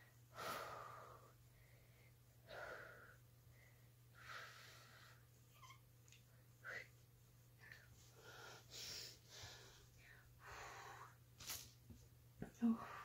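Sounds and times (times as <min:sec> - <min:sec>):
woman breathing: 0:00.0 - 0:05.5, 0:07.6 - 0:11.3, 0:12.6 - 0:13.0.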